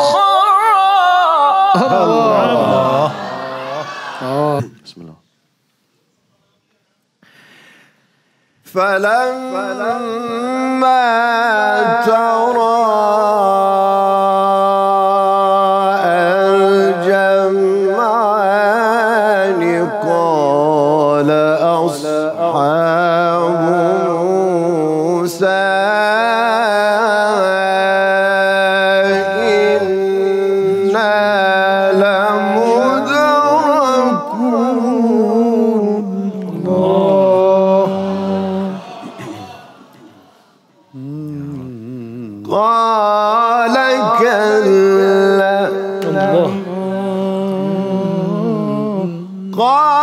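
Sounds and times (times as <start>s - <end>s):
man reciting melodically: 0.0s - 3.3s, 8.6s - 39.4s, 40.9s - 50.0s.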